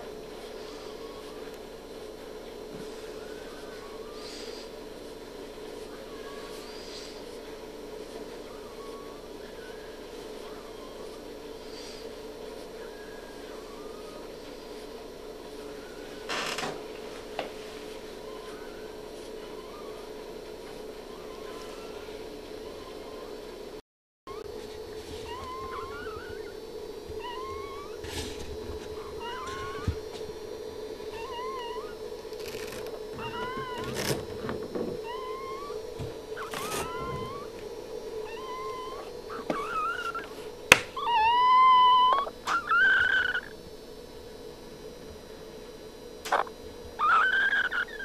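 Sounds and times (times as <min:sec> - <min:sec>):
steady hum: 0:00.0 - 0:48.0
puppies crying with high squeaks: 0:02.9 - 0:04.7, 0:08.0 - 0:14.6, 0:18.2 - 0:20.1, 0:21.0 - 0:23.3, 0:24.3 - 0:24.5, 0:25.2 - 0:26.6, 0:27.2 - 0:30.0, 0:31.1 - 0:34.4, 0:35.0 - 0:37.6, 0:38.2 - 0:43.6, 0:46.3 - 0:48.0.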